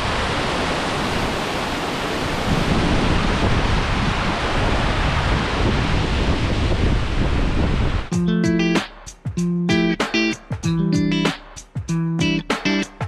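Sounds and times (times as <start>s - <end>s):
waterfall rushing: 0.0s - 8.1s.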